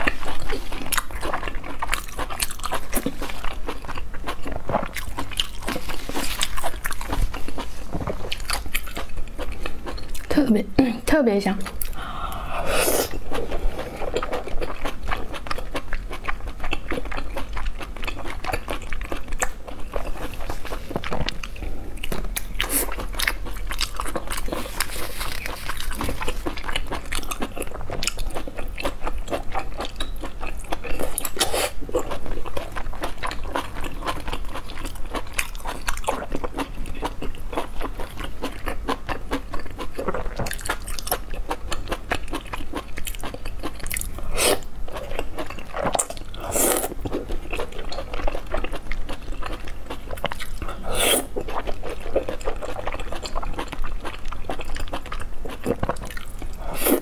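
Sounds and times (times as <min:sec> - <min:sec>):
close chewing and biting: 0:00.0 - 0:10.4, 0:13.1 - 0:57.0
loud slurps: 0:12.5 - 0:14.0, 0:50.8 - 0:51.3.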